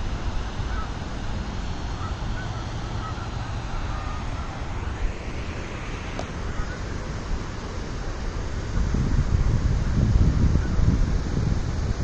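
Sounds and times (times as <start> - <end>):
distant waterbirds honking: 0.0 - 7.3
wind rumbling on microphone: 0.0 - 12.0.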